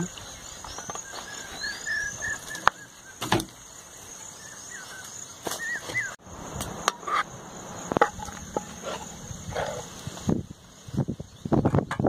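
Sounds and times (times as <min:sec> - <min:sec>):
insects shrilling: 0:00.0 - 0:11.6
metal ladle scraping a pan: 0:07.9 - 0:10.0.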